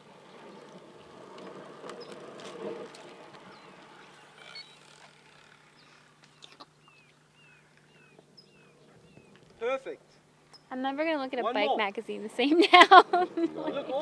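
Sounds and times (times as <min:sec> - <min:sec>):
birds chirping: 0:00.0 - 0:14.0
faint outdoor noise: 0:00.0 - 0:14.0.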